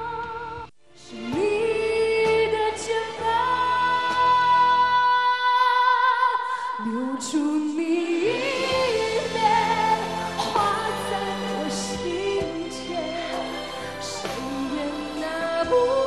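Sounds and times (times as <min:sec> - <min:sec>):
backing music: 0:00.0 - 0:05.5, 0:07.7 - 0:16.0
woman singing ballad: 0:00.0 - 0:16.0.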